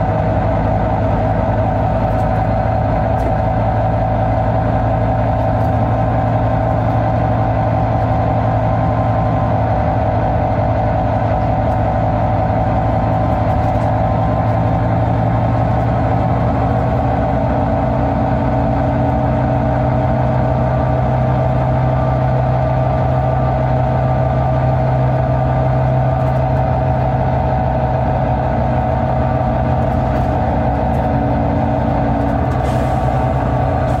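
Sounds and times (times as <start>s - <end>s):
bus diesel engine running: 0.0s - 34.0s.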